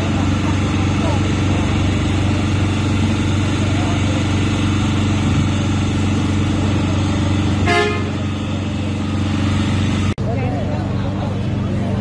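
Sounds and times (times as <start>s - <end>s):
vehicle engine running: 0.0s - 12.0s
car horn toot: 7.6s - 8.3s.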